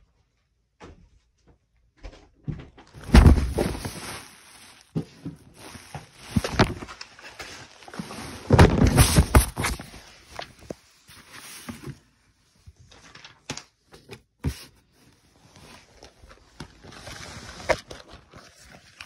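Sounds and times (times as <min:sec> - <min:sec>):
loud bumps: 0:02.9 - 0:04.3
heavy thump: 0:03.0 - 0:04.2.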